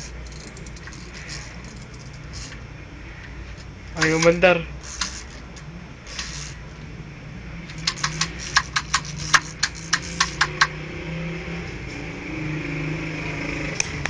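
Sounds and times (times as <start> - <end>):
steady low hum: 0.0 - 14.0
handheld device clicking: 4.0 - 5.4, 7.7 - 10.8.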